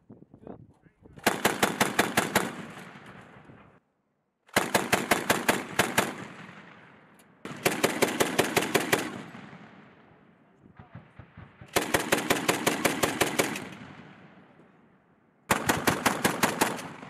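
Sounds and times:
gunfire echo: 4.5s - 14.8s, 15.5s - 17.0s
machine gun bursts: 15.5s - 17.0s.

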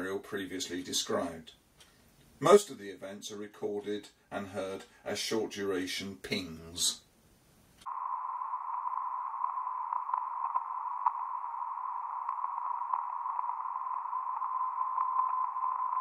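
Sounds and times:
radio receiver hiss: 7.3s - 16.0s.

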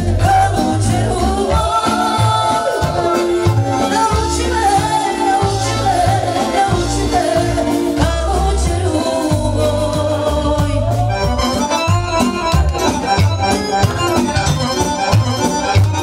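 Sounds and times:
person singing: 0.0s - 11.5s
accordion dance music: 0.0s - 16.0s
pulsing bass beat: 0.0s - 16.0s.

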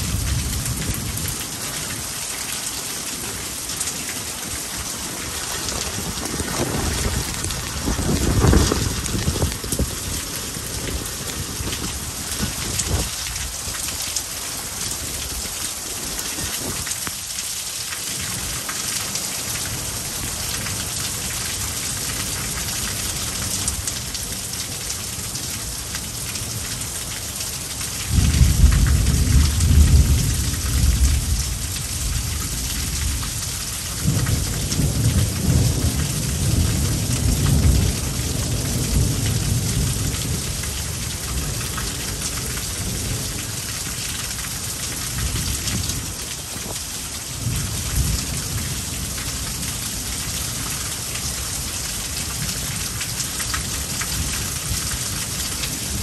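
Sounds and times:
rain hissing: 0.0s - 56.0s
thunder rumbling: 4.2s - 14.0s, 28.1s - 33.2s.

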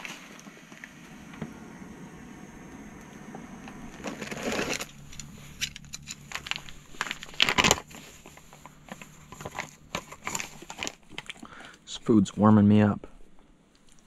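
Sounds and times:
foil pouch crinkling: 4.0s - 11.8s.

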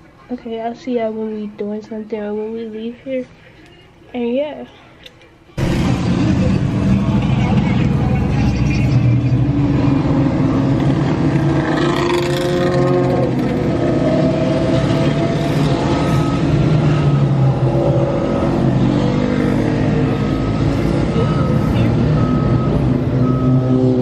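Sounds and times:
motorcycles revving past: 5.6s - 24.0s.

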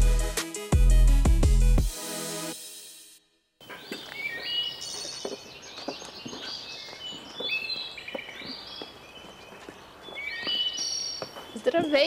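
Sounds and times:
footsteps on stone steps: 3.6s - 12.0s
songbirds chirping and singing: 3.6s - 12.0s.

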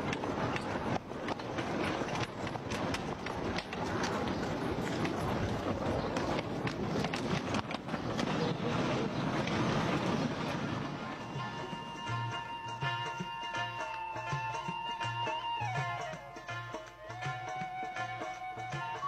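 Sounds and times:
trolley rumbling clatter: 0.0s - 14.9s
wheels clicking on track: 0.0s - 19.0s.

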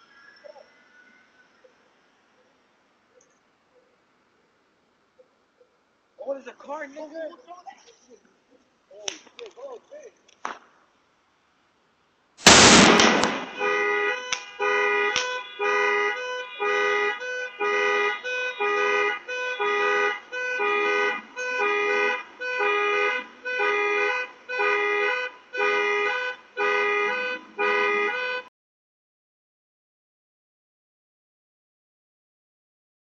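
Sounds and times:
firecracker cracks: 9.0s - 9.6s, 10.3s - 10.8s, 12.4s - 14.5s, 15.1s - 15.4s
firecracker bang: 12.4s - 14.4s
car alarm two-tone horn: 13.4s - 28.5s.

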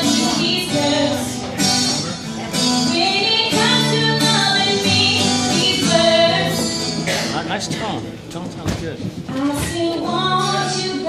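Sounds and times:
woman singing into a microphone: 0.0s - 1.8s, 2.5s - 7.2s, 9.2s - 11.0s
strummed acoustic guitar: 0.0s - 11.0s.

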